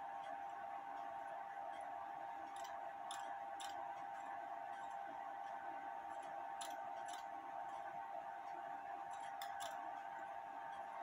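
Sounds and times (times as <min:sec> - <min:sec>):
faint steady hum: 0:00.0 - 0:11.0
light sharp clicks of clock parts: 0:01.7 - 0:07.9, 0:08.5 - 0:09.8.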